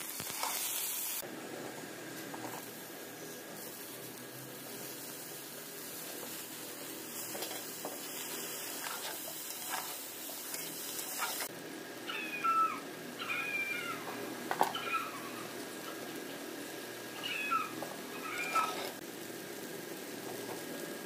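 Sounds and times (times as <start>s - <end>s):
cat meowing: 12.0s - 15.5s, 17.2s - 18.9s.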